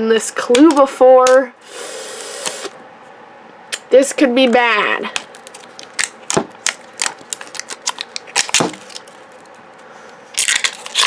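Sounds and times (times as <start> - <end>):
plastic wrapper crackling: 5.1 - 9.6, 10.4 - 11.0.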